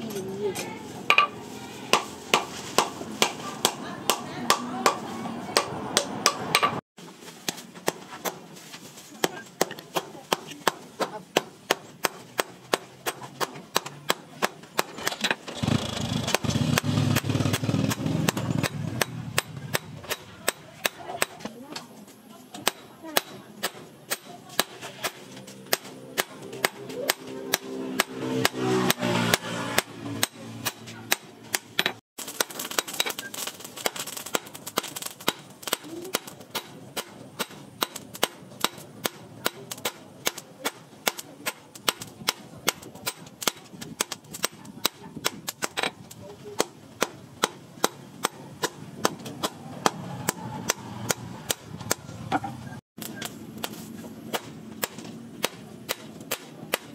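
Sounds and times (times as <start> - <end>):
hammer striking metal on anvil: 1.1 - 5.0, 5.6 - 6.8, 22.6 - 32.0.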